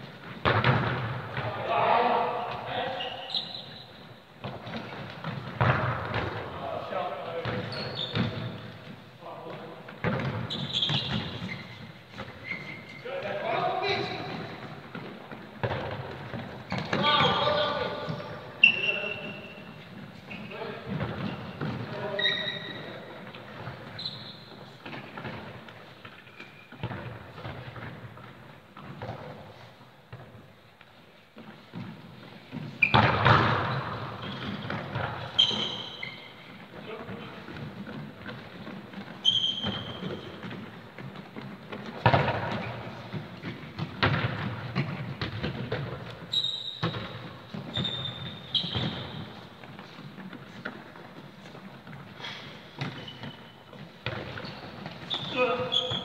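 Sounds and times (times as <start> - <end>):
football kicks echoing in hall: 0.0 - 56.0
trainers squeaking on floor: 2.7 - 5.3, 7.4 - 8.9, 9.5 - 15.1, 16.2 - 25.6, 31.6 - 41.8, 46.2 - 56.0
short high squeaks: 2.9 - 4.0, 7.7 - 8.3, 10.5 - 11.8, 12.4 - 13.0, 18.6 - 20.5, 21.3 - 23.0, 24.0 - 24.5, 35.3 - 36.4, 39.2 - 40.3, 46.3 - 49.2, 54.4 - 56.0
ball thudding and bouncing: 4.4 - 6.6, 37.5 - 46.2.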